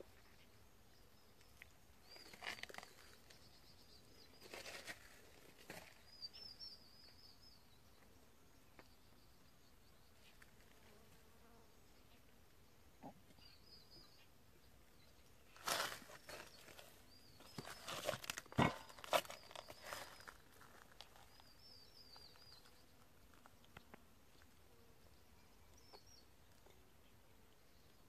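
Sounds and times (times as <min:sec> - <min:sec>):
faint bird chirping: 0:00.0 - 0:28.0
crunching on gravel and grass: 0:02.0 - 0:03.5, 0:04.4 - 0:06.0, 0:15.5 - 0:23.8.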